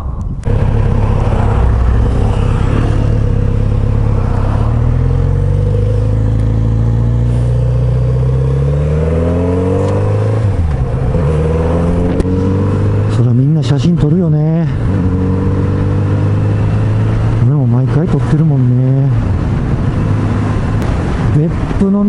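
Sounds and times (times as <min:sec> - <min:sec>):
wind rush on microphone: 0:00.0 - 0:05.4, 0:18.3 - 0:22.0
motorcycle engine accelerating: 0:00.4 - 0:22.0.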